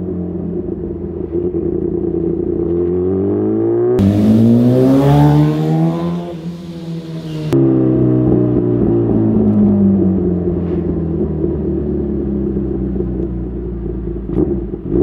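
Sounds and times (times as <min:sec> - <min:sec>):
motorcycle engine onboard: 0:00.0 - 0:15.0
motorcycle accelerating past: 0:02.8 - 0:08.7.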